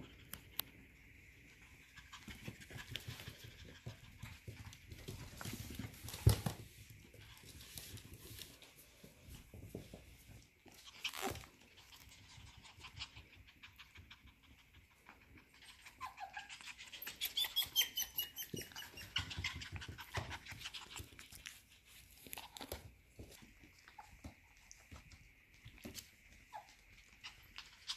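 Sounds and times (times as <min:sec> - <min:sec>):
puppies panting and snuffling: 0:00.0 - 0:27.9
puppies whining: 0:15.2 - 0:21.4.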